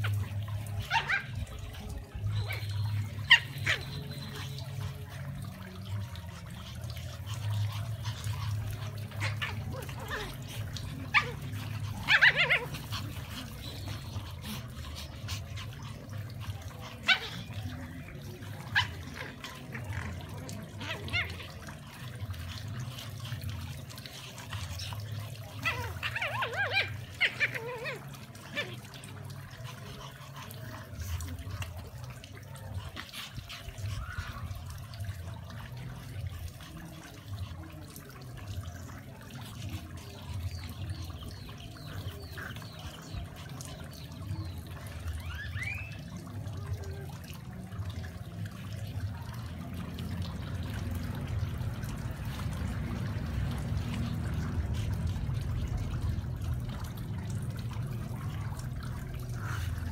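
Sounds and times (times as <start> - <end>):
dogs yapping while play-fighting: 0.0 - 37.6, 38.7 - 46.2.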